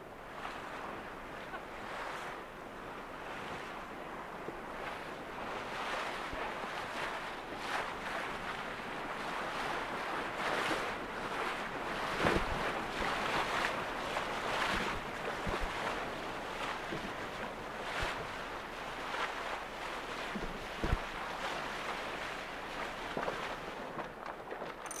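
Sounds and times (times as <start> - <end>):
wind on microphone: 0.0 - 24.9
water rushing along hull: 0.0 - 25.0.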